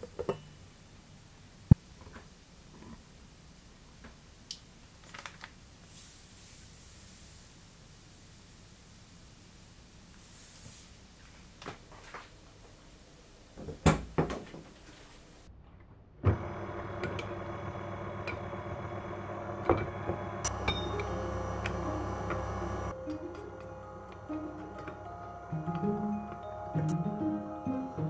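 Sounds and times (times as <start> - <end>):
stand mixer motor humming: 16.3 - 22.9.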